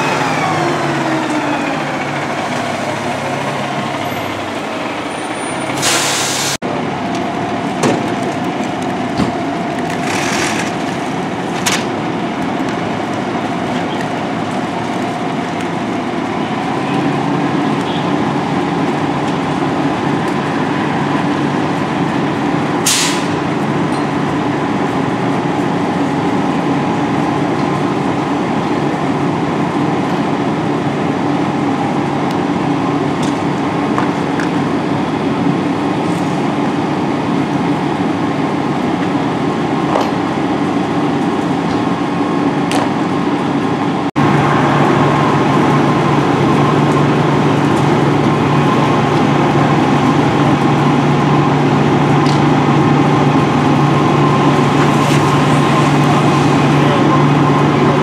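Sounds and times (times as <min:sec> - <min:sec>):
diesel engine running: 0:00.0 - 0:58.0
brief hiss: 0:05.8 - 0:06.6.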